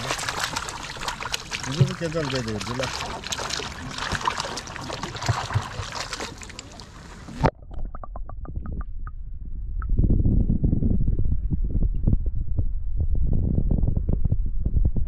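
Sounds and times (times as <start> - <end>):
water pouring and splashing: 0.0 - 8.2
water clicks on the microphone: 0.0 - 9.2
muffled underwater clicks: 7.3 - 9.2.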